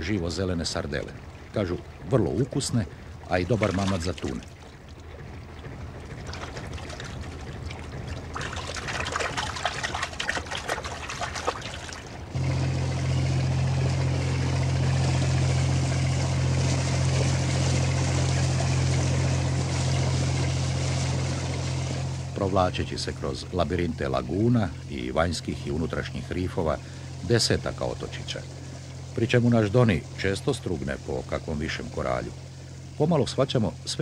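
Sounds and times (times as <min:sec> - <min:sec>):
boat engine droning: 0:00.0 - 0:34.0
rushing wake water: 0:00.0 - 0:34.0
water splashing and pouring: 0:00.8 - 0:12.4.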